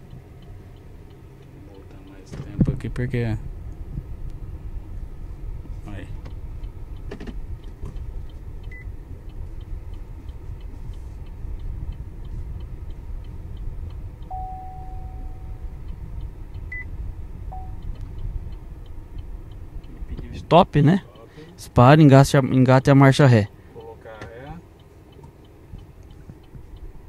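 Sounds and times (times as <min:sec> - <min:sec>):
engine and tyre rumble: 0:00.0 - 0:27.0
turn signal ticking: 0:00.0 - 0:27.0
short electronic beeps: 0:14.3 - 0:15.7, 0:17.5 - 0:17.9
longer electronic tone: 0:14.3 - 0:15.8, 0:17.5 - 0:17.9.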